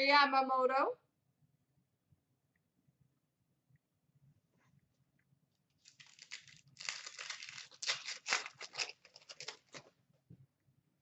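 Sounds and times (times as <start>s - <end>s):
wrapper tearing and crinkling: 5.8s - 9.9s.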